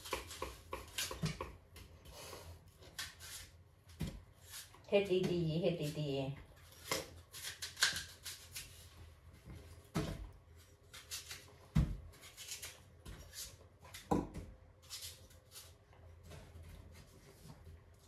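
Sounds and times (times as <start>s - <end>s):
knife cutting crisp fruit: 2.7s - 4.9s, 6.6s - 9.0s, 10.6s - 16.0s.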